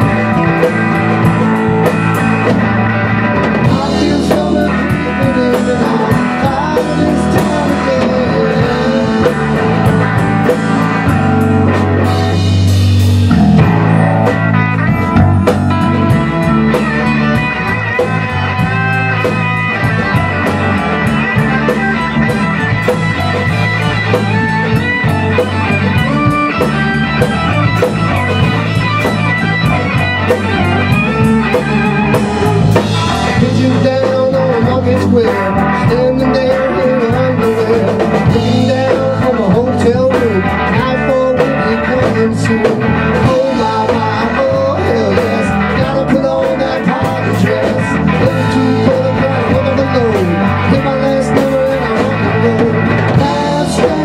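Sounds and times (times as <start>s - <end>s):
drum kit hits: 0.0s - 34.2s
bass guitar: 0.0s - 54.0s
electric guitar: 0.0s - 54.0s.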